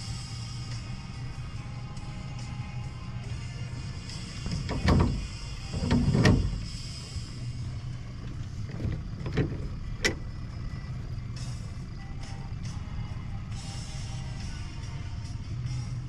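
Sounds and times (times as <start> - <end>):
outboard motor running: 0.0 - 16.0
knocks and clunks on boat: 4.0 - 7.0, 8.0 - 11.1.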